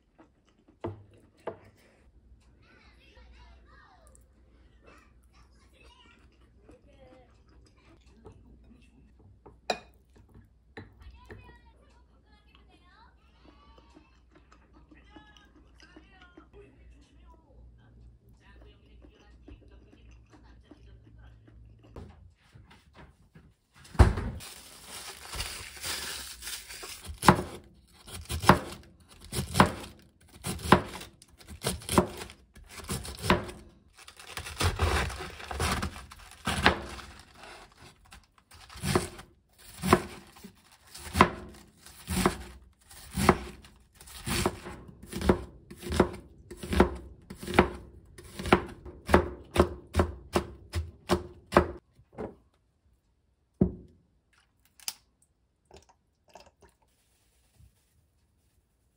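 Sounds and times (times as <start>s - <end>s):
cling wrap crinkling: 24.4s - 27.2s, 33.9s - 44.0s
knife slicing cabbage on board: 25.2s - 51.8s.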